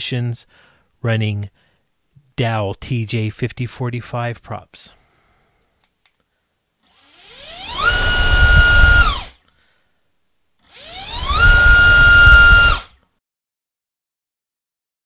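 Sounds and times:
electric motor whine: 6.9 - 9.3, 10.7 - 12.9.

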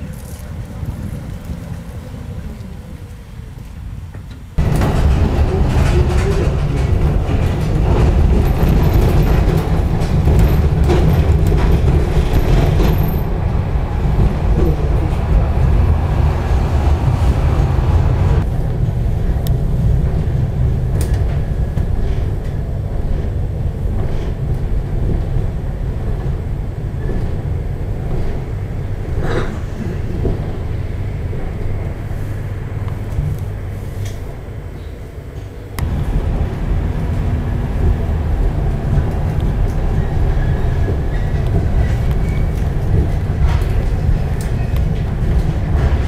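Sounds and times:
tram wheels rumbling: 0.0 - 46.0
knocks and rattles: 4.6 - 13.4.

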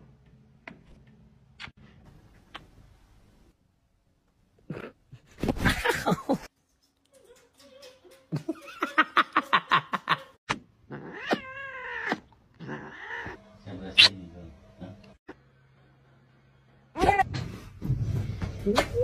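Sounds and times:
cats yowling and growling: 10.9 - 13.4.

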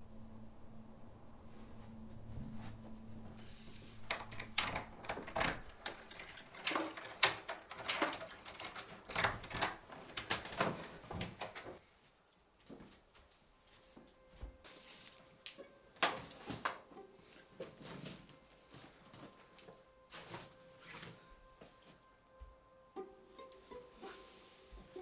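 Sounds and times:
metal door handle rattling: 4.0 - 11.8.

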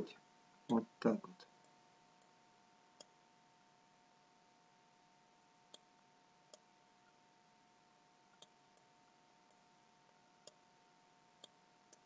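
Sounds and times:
faint two-tone hum: 0.0 - 12.0.

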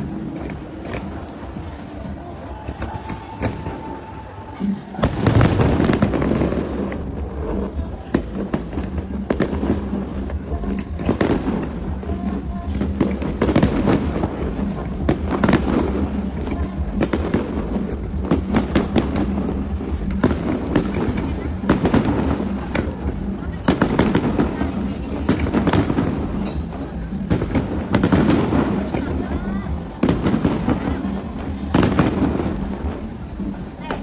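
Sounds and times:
fireworks bangs and crackles: 0.0 - 34.0
music playing: 0.0 - 34.0.

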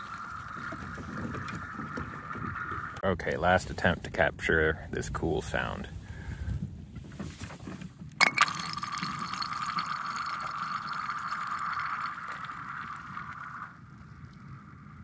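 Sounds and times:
ice ringing hum: 0.0 - 3.0, 8.2 - 15.0
ice cracking: 8.2 - 13.7.

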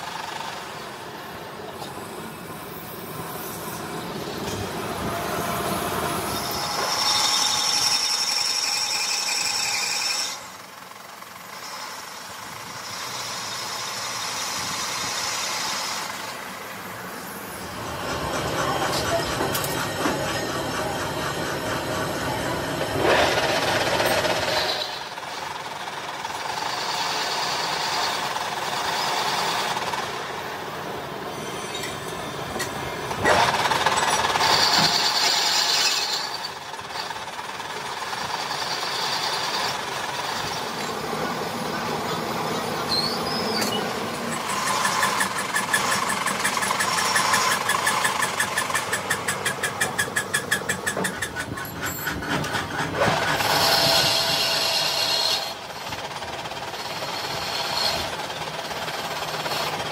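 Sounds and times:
fast even rattle: 44.2 - 53.9.

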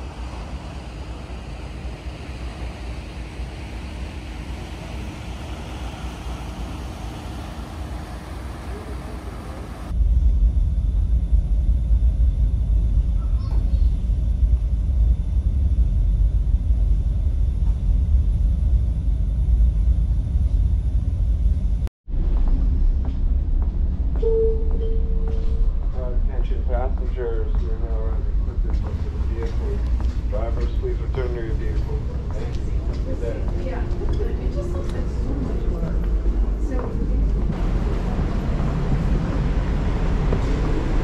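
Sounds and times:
wind and water hiss: 0.0 - 9.9
heavy low engine rumble: 0.0 - 41.0.

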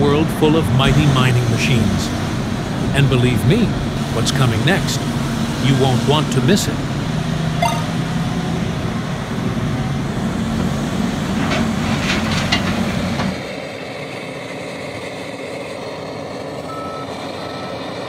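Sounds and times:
reversing alarm beeping: 7.6 - 8.1, 16.7 - 17.8.

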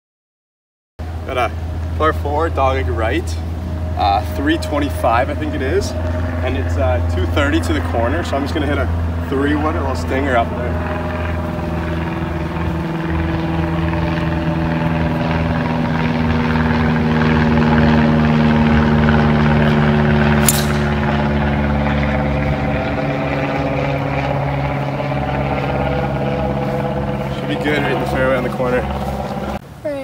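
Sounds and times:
engine drone: 1.0 - 30.0
golf club striking ball: 20.4 - 21.5.

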